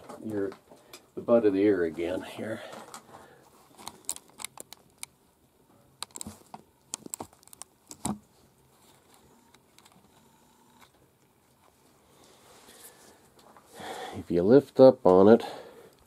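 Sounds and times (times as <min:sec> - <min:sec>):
faint room hum: 0:00.0 - 0:16.0
gloved hands clicking and crinkling: 0:02.7 - 0:05.2, 0:06.0 - 0:10.1.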